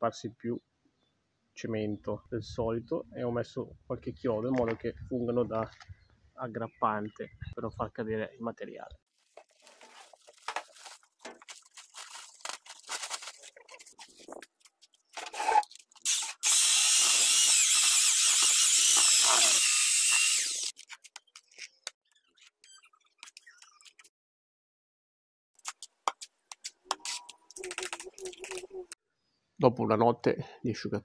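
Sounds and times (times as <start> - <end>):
drill mixing mortar in bucket: 15.3 - 20.7.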